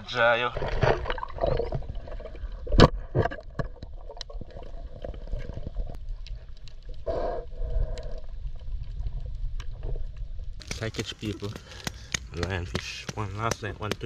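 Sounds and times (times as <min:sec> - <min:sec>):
underwater rumble of moving water: 0:00.0 - 0:10.6.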